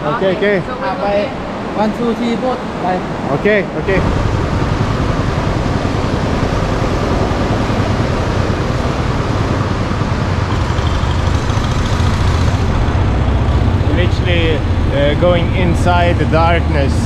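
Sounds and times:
motorboat engine running: 0:03.9 - 0:17.0.

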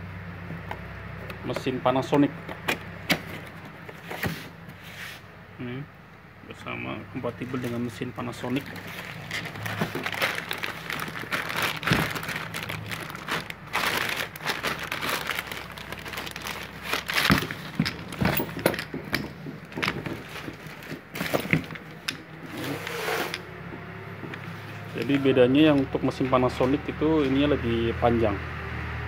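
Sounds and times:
plastic wrapping crinkling: 0:07.4 - 0:22.3.

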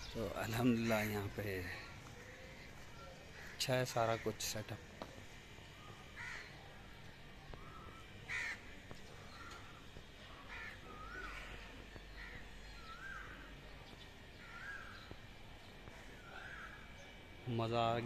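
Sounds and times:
crows cawing: 0:00.2 - 0:13.6, 0:14.3 - 0:17.2
rising and falling bird call: 0:07.5 - 0:13.6, 0:14.3 - 0:15.2.

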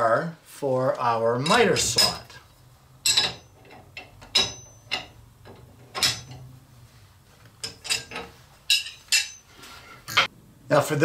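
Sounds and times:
metal wrench clinking: 0:01.4 - 0:02.4, 0:03.0 - 0:06.6, 0:07.6 - 0:10.3.

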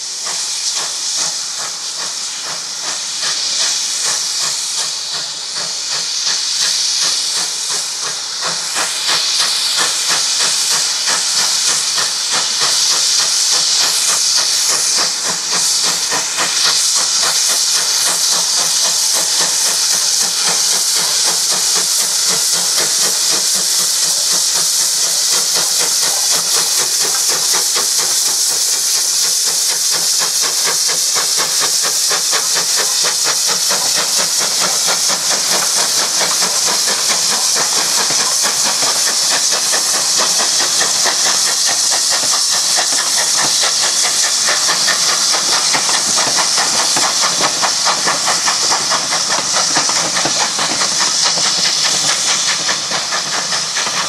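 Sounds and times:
steam hissing: 0:00.0 - 0:54.0
steam locomotive beat: 0:00.0 - 0:54.0.

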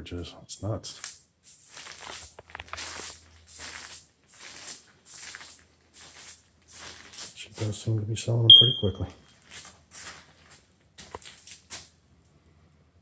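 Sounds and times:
footsteps on crinkling plastic: 0:01.5 - 0:08.3, 0:09.0 - 0:12.0.

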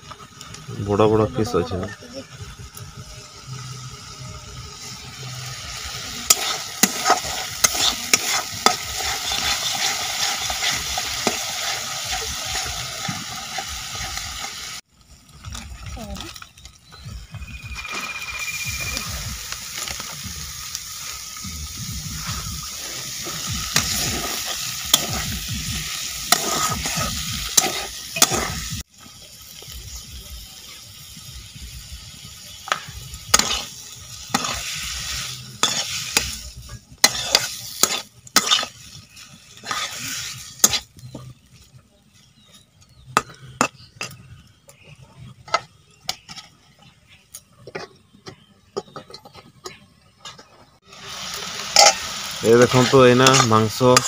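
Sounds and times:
meat sizzling in a wok: 0:00.0 - 0:16.2, 0:16.9 - 0:46.4, 0:50.8 - 0:54.0
metal spatula scraping a pan: 0:06.2 - 0:14.5, 0:22.2 - 0:28.8, 0:32.7 - 0:41.2, 0:51.6 - 0:54.0.

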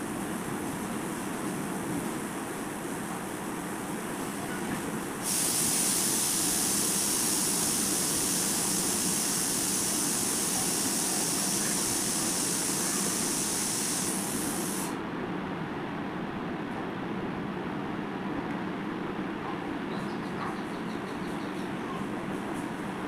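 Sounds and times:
steady high hiss: 0:00.0 - 0:15.1.

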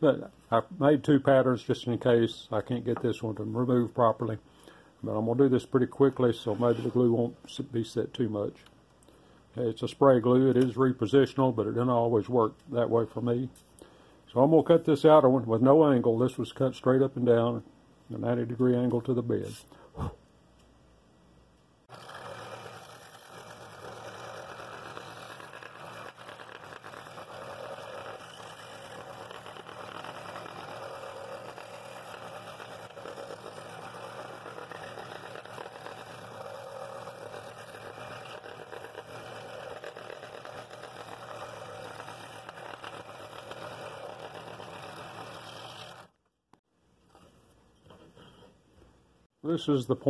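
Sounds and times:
scroll saw cutting wood: 0:21.9 - 0:46.2.

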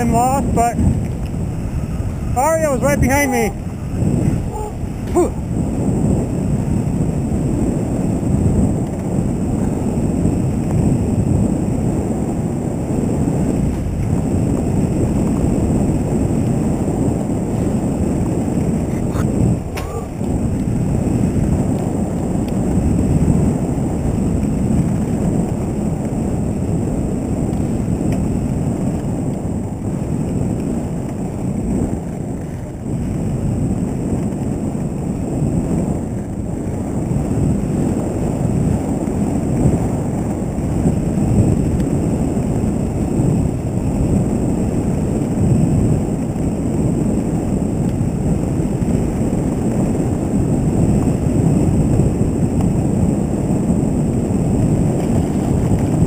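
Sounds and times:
wind on microphone: 0:00.0 - 0:56.0.

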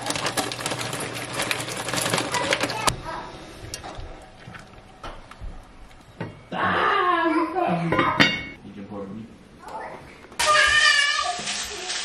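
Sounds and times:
dry pasta pouring into pot: 0:00.0 - 0:02.9.

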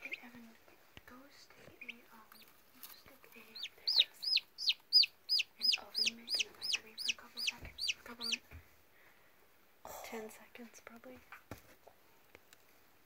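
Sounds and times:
turkey poult peeping: 0:01.8 - 0:08.4.

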